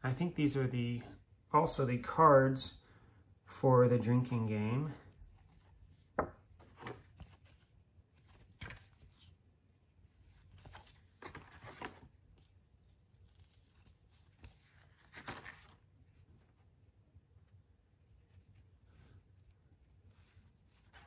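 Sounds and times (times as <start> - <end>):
cards sliding and rustling: 5.3 - 9.4, 10.1 - 16.7, 18.2 - 21.0.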